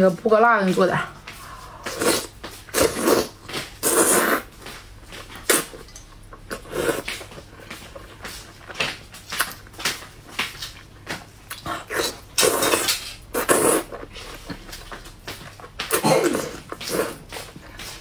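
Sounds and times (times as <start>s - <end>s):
slurping and wet chewing: 1.8s - 9.6s, 11.4s - 18.0s.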